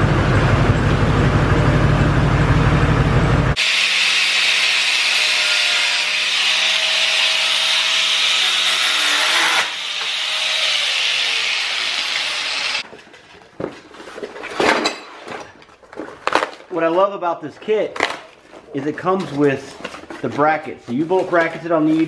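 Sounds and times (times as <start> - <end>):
angle grinder cutting metal: 3.6 - 12.8
hands rustling in cardboard box: 18.3 - 22.0.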